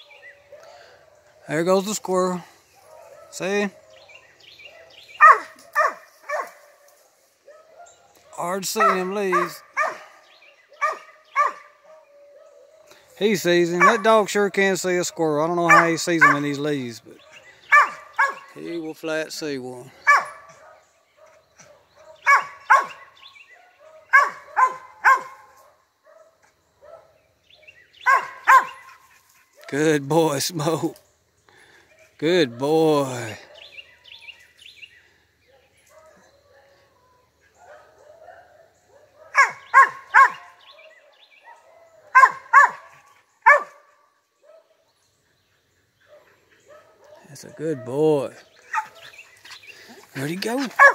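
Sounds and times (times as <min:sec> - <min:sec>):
dog barking: 0:02.8 - 0:13.0, 0:13.7 - 0:14.2, 0:15.7 - 0:16.5, 0:17.2 - 0:18.6, 0:20.0 - 0:27.2, 0:28.0 - 0:29.0, 0:33.4 - 0:33.8, 0:35.5 - 0:37.0, 0:37.6 - 0:44.8, 0:46.1 - 0:48.0, 0:48.7 - 0:49.1, 0:50.5 - 0:50.9.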